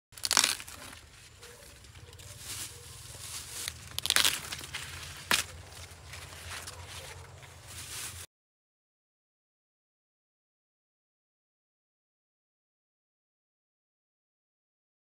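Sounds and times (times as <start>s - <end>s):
rustling corn leaves: 0.1s - 8.3s
corn ears snapping off: 0.2s - 2.7s, 3.4s - 6.8s.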